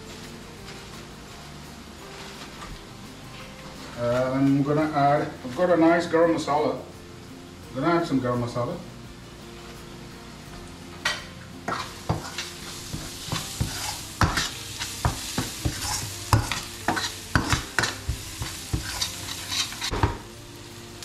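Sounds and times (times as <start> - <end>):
onions sizzling: 0.0 - 21.0
metal spoon scraping pan: 11.7 - 20.0.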